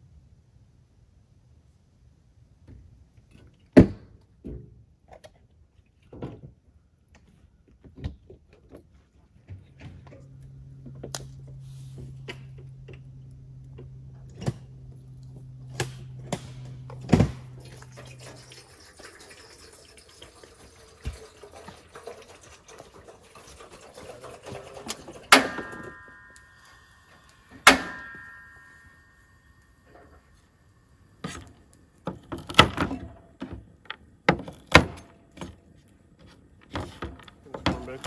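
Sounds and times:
low steady hum: 8.6s - 38.0s
water pouring into a pot: 17.5s - 26.8s
loud metallic clanks with ringing: 25.2s - 30.3s
sharp knocks: 27.6s - 29.0s.

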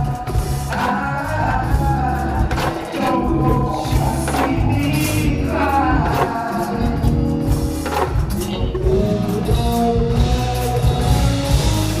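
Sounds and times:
live band music: 0.0s - 12.0s
man singing amplified: 0.0s - 12.0s.

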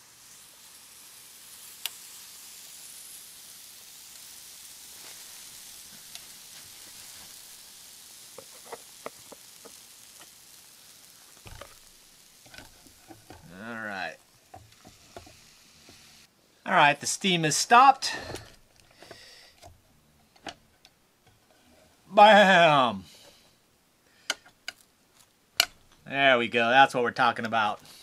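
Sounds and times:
batter sizzling on hot plates: 0.0s - 28.0s
small ticks: 1.7s - 2.0s.

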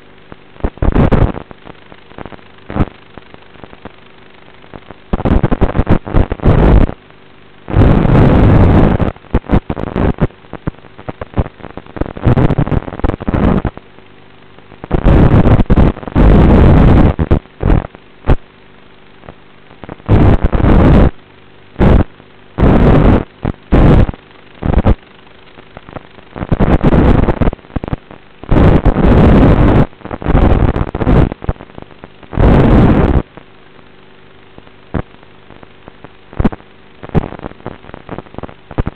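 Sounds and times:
distorted rushing noise bursts: 0.0s - 7.0s, 7.7s - 13.8s, 14.8s - 18.5s, 19.8s - 21.2s, 21.8s - 33.3s
steady electrical hum: 0.0s - 38.9s.

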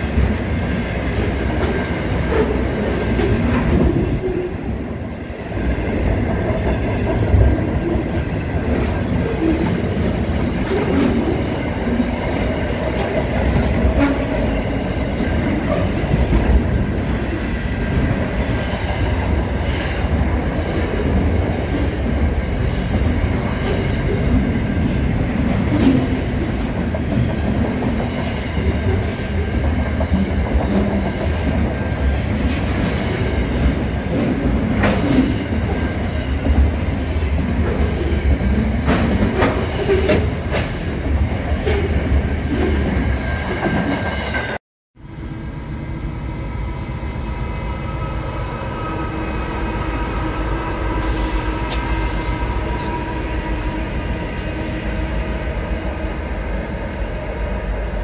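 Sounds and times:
train wheels rumbling on rails: 0.0s - 44.6s, 45.2s - 58.0s.

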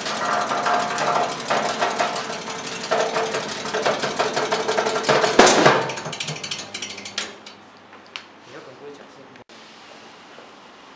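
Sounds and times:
rapid chopping clatter: 0.0s - 7.4s
motor hum: 0.0s - 7.6s.

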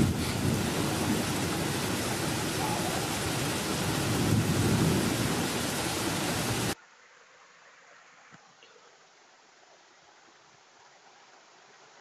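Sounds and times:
thunder rumbling: 0.0s - 6.8s
steady rain: 0.0s - 12.0s.

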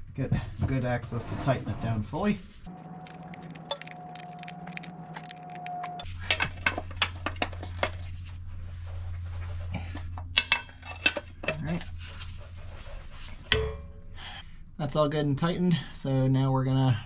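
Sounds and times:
low hum: 2.4s - 14.9s.

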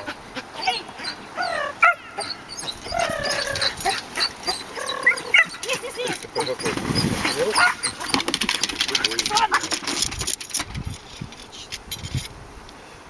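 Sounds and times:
dog barking and yipping: 0.6s - 8.2s
dog whining: 1.4s - 8.2s.

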